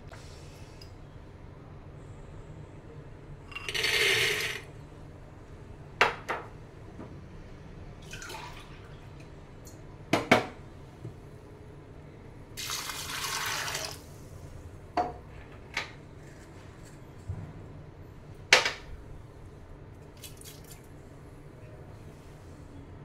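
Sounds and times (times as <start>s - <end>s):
dried peas pouring into pot: 3.7s - 4.6s
water pouring into pot: 12.6s - 14.0s.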